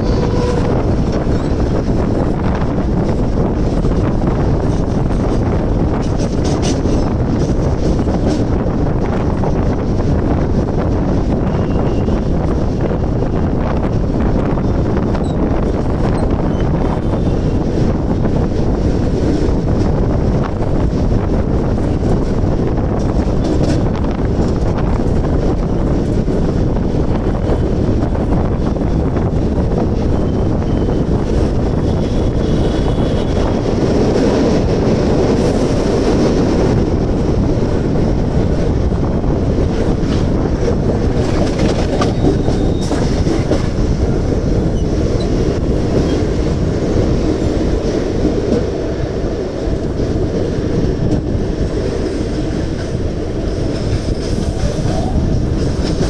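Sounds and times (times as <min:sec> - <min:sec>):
train wheels rumbling on rails: 0:00.0 - 0:56.0
wheels clicking over rail joints: 0:21.8 - 0:48.8.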